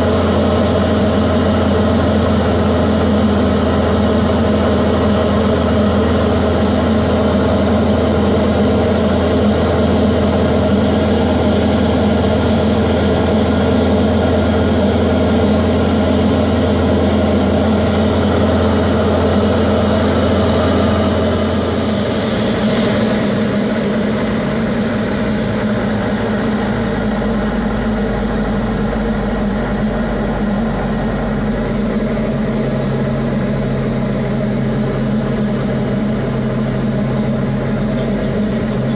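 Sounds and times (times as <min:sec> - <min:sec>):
aircraft engine and propeller drone: 0:00.0 - 0:38.9
rushing air: 0:09.1 - 0:36.2.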